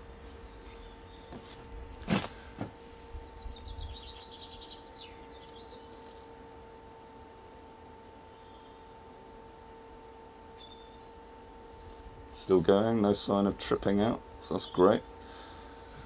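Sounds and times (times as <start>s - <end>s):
steady electrical hum: 0.0s - 16.0s
bird chirping: 3.4s - 6.0s, 8.0s - 12.6s.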